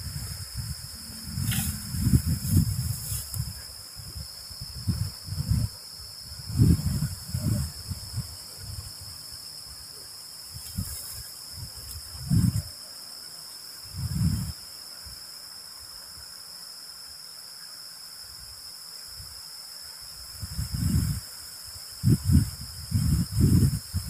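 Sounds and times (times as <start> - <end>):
wind buffeting microphone: 0.0 - 9.8, 10.4 - 12.8, 13.8 - 14.6, 20.2 - 21.3, 21.9 - 24.0
night insects chorus: 0.0 - 24.0.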